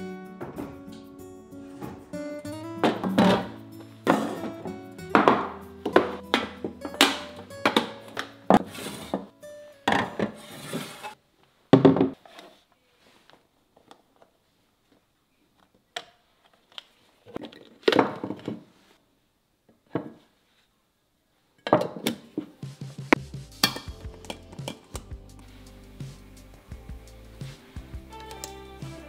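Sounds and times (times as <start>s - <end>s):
plastic containers clattering on table: 2.8s - 9.3s, 9.9s - 11.1s, 11.8s - 12.2s, 17.3s - 18.7s.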